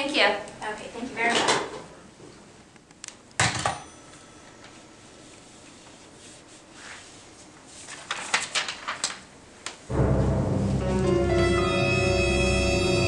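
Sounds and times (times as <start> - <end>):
paper rustling: 5.4 - 9.3.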